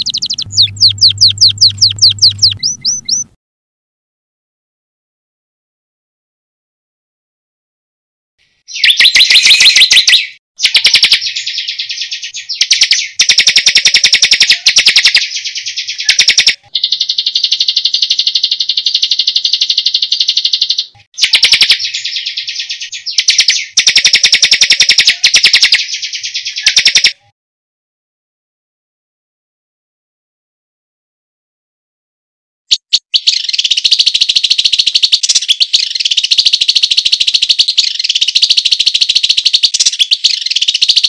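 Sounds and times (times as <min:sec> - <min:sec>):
songbird trilling: 0:00.0 - 0:03.3, 0:08.7 - 0:27.2, 0:32.7 - 0:41.0.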